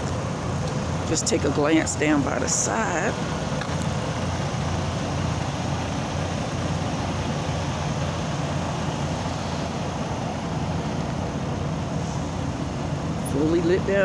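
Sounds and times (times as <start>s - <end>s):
diesel truck engine idling: 0.0s - 14.0s.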